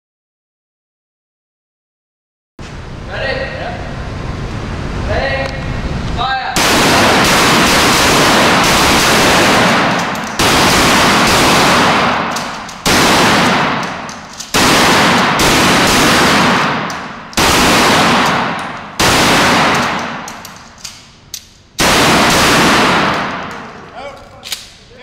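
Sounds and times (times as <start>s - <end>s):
gunshots echoing indoors: 6.5s - 24.8s.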